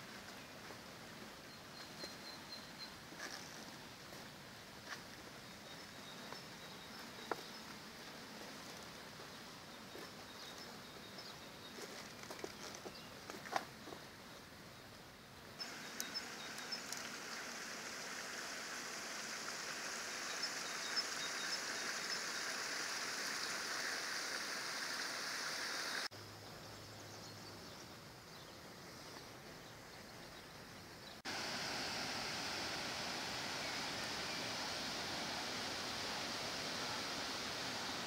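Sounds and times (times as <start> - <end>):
river water flowing over stones: 15.6 - 26.1, 31.3 - 38.0.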